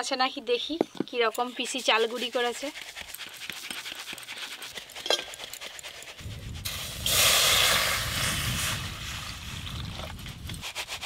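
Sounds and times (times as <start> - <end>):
water splashing hiss in wok: 6.4 - 11.0.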